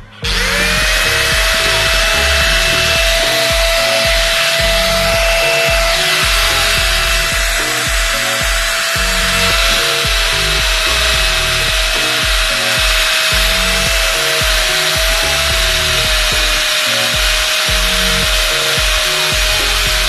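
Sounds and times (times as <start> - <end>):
angle grinder buffing metal: 0.0 - 20.0
background music with steady beat: 0.0 - 20.0.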